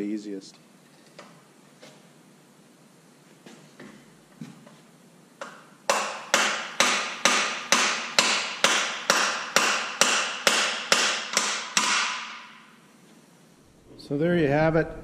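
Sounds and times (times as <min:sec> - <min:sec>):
hammer striking metal: 0:05.9 - 0:12.7.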